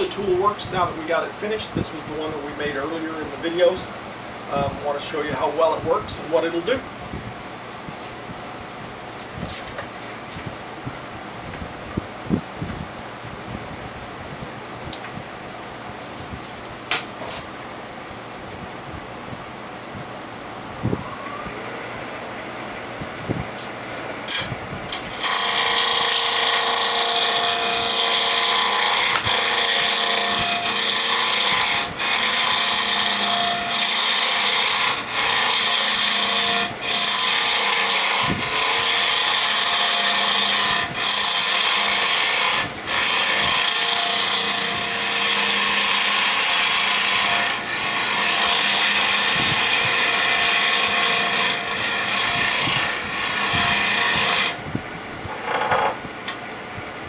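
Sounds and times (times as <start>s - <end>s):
lathe tool scraping wood: 24.3s - 54.6s, 55.3s - 56.0s
lathe humming: 24.9s - 54.5s.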